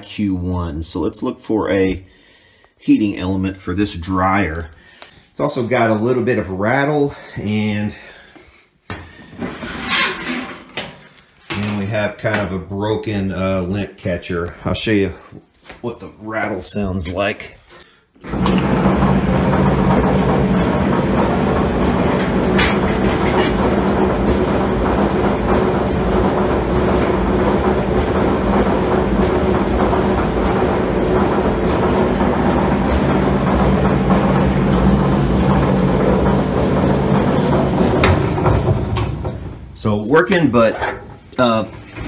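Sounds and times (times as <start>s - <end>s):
clothes dryer rattling rumble: 18.2s - 42.0s.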